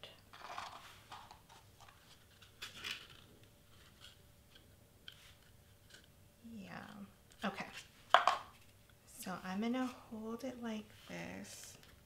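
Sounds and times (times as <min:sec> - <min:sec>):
cardstock rustling and crinkling: 0:00.3 - 0:06.1.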